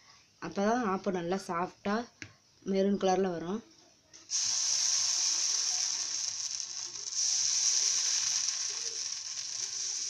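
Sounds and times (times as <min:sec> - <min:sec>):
batter sizzling in hot pan: 0:04.3 - 0:10.0.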